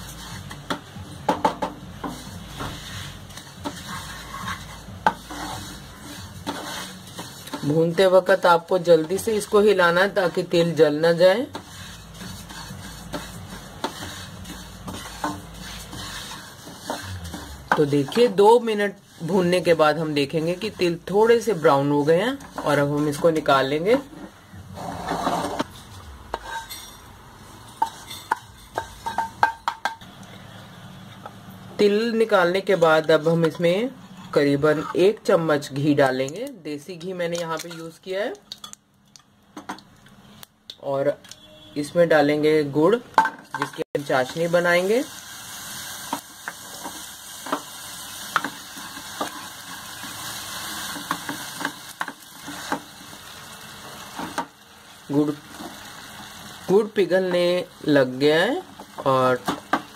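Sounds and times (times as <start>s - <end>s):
sizzling in a pan: 0.0s - 38.8s, 43.2s - 59.9s
wooden spatula knocking on pan: 0.7s - 2.7s.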